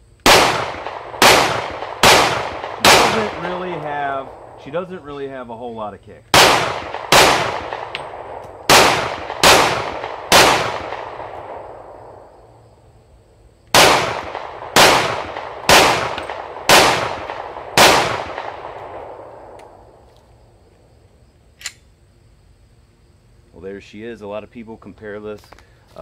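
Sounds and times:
pistol shots: 0.2s - 4.8s, 6.3s - 12.3s, 13.7s - 19.8s.

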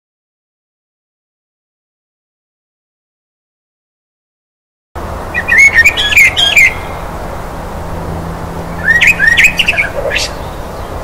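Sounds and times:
steady background hiss: 5.0s - 11.0s
bird chirping: 5.3s - 11.0s.

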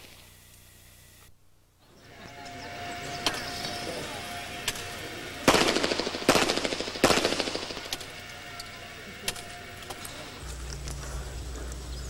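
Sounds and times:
pistol shots echoing: 3.2s - 10.4s
fainter sharp cracks: 4.6s - 11.0s.

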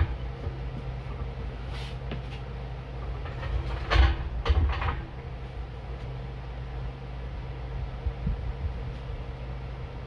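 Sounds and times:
steady low hum: 0.0s - 10.0s
heavy metal clunk: 3.2s - 5.2s.

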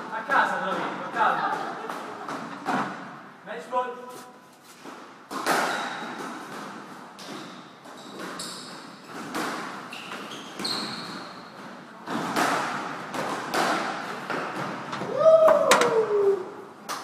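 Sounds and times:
squash ball striking rackets and walls: 4.8s - 16.2s
sneakers squeaking on wooden floor: 7.2s - 12.3s.

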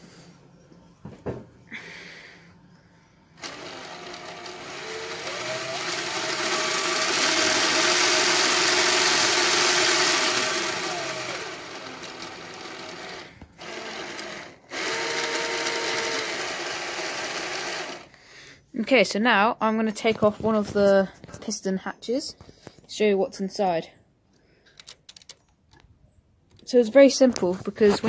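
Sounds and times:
power drill motor whine: 3.4s - 18.1s
plastic gears clattering: 24.7s - 25.8s.

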